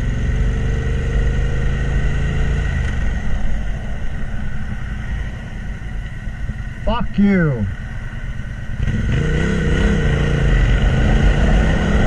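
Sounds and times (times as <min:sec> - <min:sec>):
motorcycle engine running: 0:00.0 - 0:04.8
road rumble: 0:00.0 - 0:12.0.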